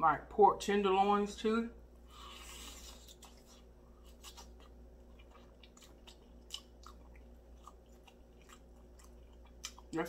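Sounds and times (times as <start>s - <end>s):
faint low hum: 0.0s - 10.0s
chewing mouth clicks and smacks: 2.7s - 10.0s.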